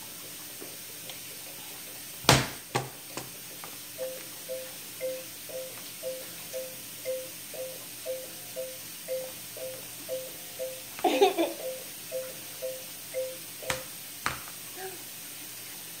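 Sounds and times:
toy laptop electronic beeps: 4.0 - 10.9, 11.6 - 13.8.

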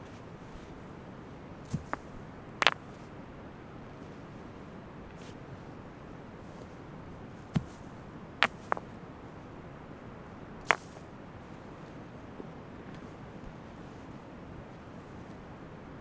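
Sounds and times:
steady background hiss: 0.0 - 16.0
hard objects knocking: 2.6 - 2.8, 8.4 - 8.8.

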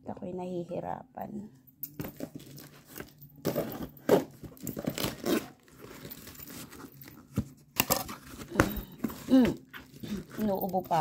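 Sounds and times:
cardboard crinkling and scraping: 2.0 - 11.0
tape ripping off cardboard: 3.4 - 6.8.

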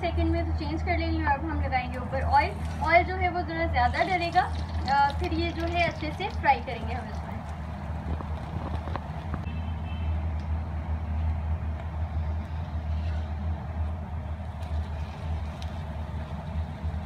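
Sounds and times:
flatbread frying in oil: 3.9 - 9.6.

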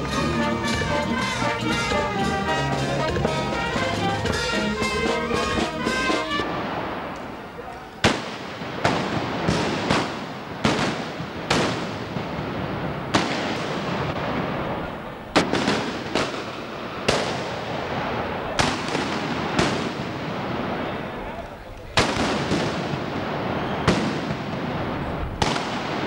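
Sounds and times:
gunshots with rolling echo: 0.0 - 26.0.

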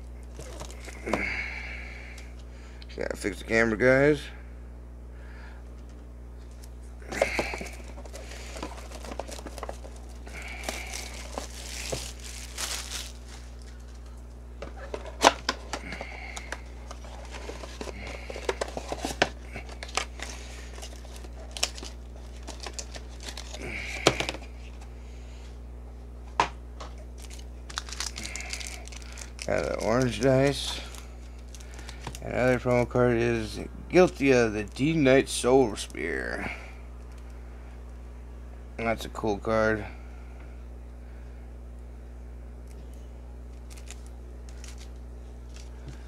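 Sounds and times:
steady low hum: 0.0 - 46.0
packaging crinkling and tearing: 0.2 - 1.2, 6.5 - 14.2, 14.8 - 24.8, 27.0 - 32.6, 43.5 - 46.0.

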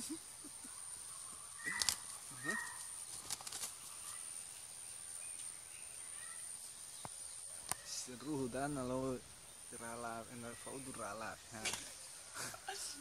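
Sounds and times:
hens calling: 0.0 - 3.0
light clicks and rustles: 2.8 - 4.2.

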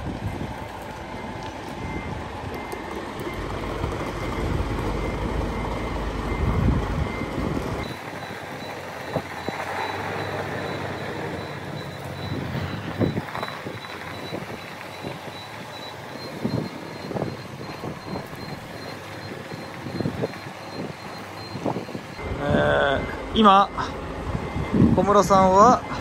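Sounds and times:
truck engine: 0.0 - 26.0
reversing alarm short high beeps: 4.2 - 26.0.

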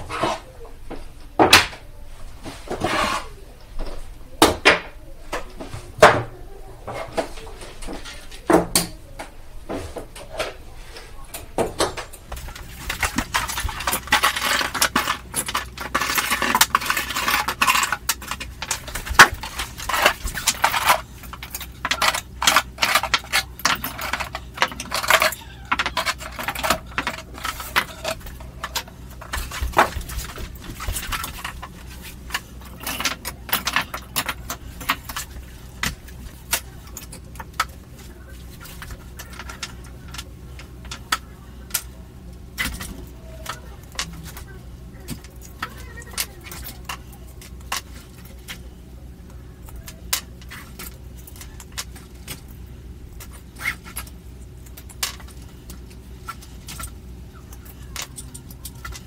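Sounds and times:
metal parts clinking: 12.1 - 42.0.

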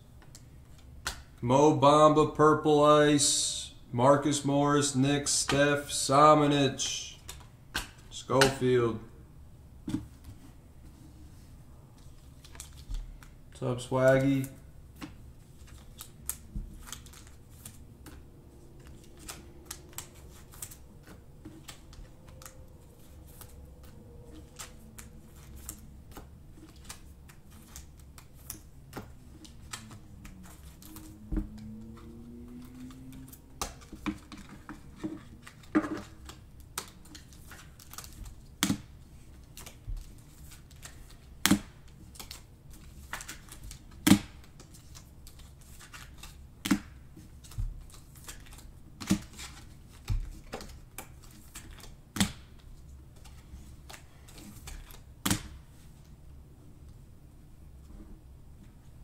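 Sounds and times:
trading cards clicking and snapping: 0.2 - 1.3, 14.1 - 55.6.

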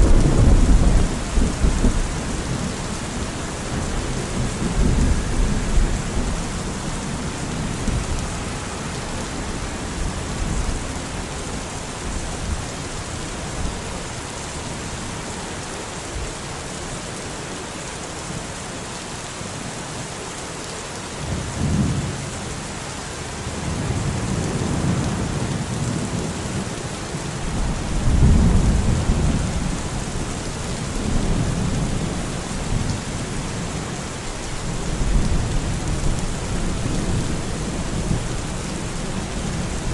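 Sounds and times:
rolling thunder: 0.0 - 11.2, 27.5 - 33.4
steady rain falling: 0.0 - 39.9.

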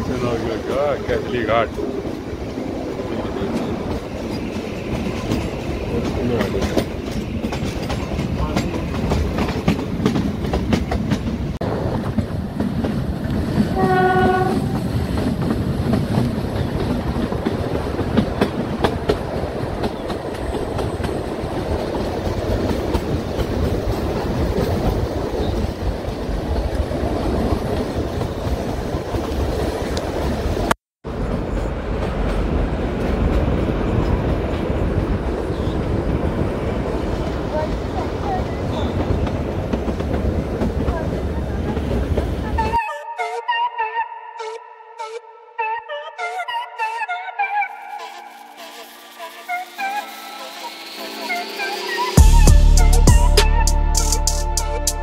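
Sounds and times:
train rolling: 0.0 - 42.8, 47.6 - 53.1
wheels clacking over rail joints: 0.0 - 42.8
train horn blast: 13.7 - 14.9.

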